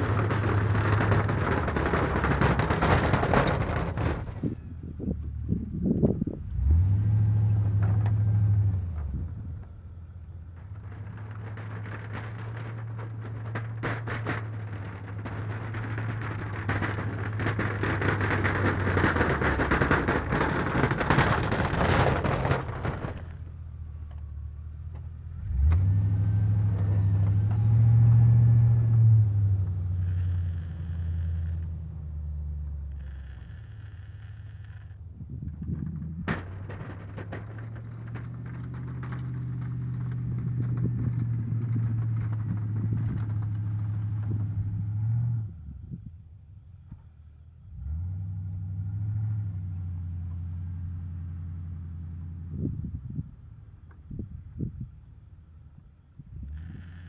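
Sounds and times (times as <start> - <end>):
truck engine revving: 0.0 - 4.6, 5.2 - 9.6, 25.3 - 35.0, 47.7 - 52.7
plow blade scraping snow: 0.0 - 4.7, 5.7 - 23.6, 25.4 - 35.0, 56.5 - 57.0.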